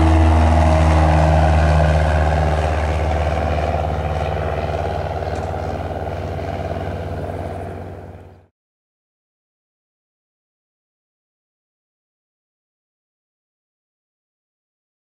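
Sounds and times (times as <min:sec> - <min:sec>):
airplane engine and propeller drone: 0:00.0 - 0:08.5.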